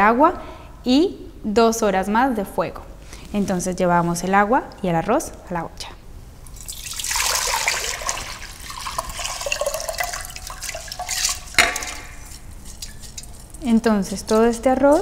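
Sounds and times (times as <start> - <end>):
water and rice pouring into pot: 6.5 - 13.6.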